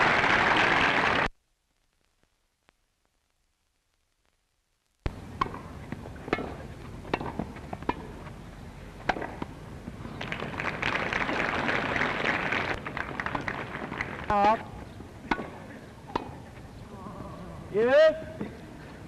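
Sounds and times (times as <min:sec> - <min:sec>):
crowd applause: 0:00.0 - 0:01.3, 0:10.2 - 0:14.3
film soundtrack hiss: 0:00.0 - 0:19.0
tennis ball struck by rackets: 0:05.4 - 0:08.3, 0:09.0 - 0:09.6, 0:14.3 - 0:16.4.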